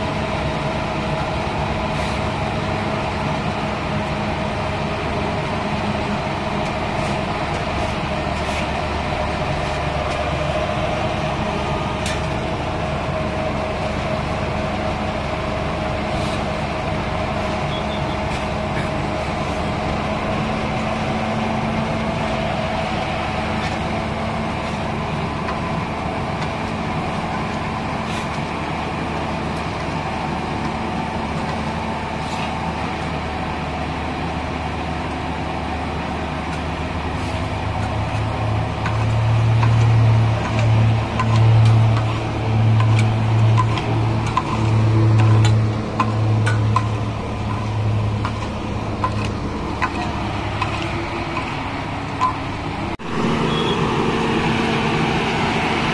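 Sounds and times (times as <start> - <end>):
paver engine running: 0.0 - 55.9
shovels clicking and scraping: 37.2 - 52.4
low drone: 37.2 - 55.9.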